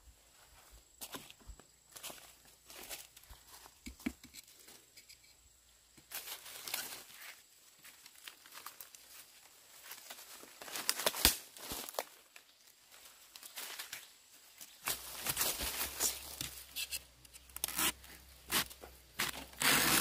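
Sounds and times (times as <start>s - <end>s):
knife scraping and chopping soil: 3.8s - 5.4s, 15.3s - 20.0s
dry leaf litter crackling: 6.1s - 16.8s.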